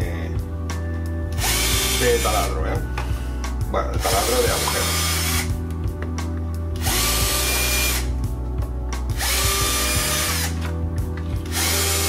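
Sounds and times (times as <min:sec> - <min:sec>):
background music: 0:00.0 - 0:12.0
cordless drill drilling plastic: 0:01.4 - 0:02.2, 0:04.0 - 0:05.5, 0:06.8 - 0:08.1, 0:09.2 - 0:10.7, 0:11.4 - 0:12.0.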